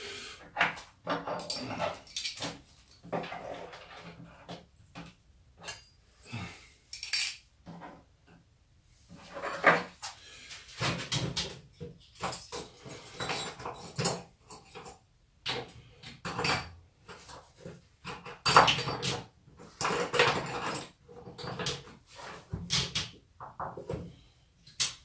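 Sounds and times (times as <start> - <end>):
tools knocking and clattering: 0.6 - 6.0, 10.8 - 17.4, 18.0 - 24.1.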